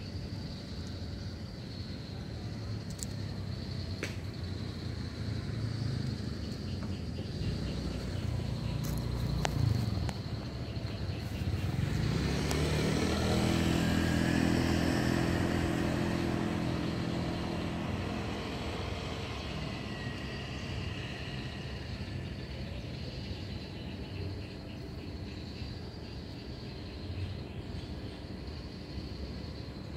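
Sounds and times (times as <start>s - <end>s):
vehicle engine passing by: 4.5s - 23.4s.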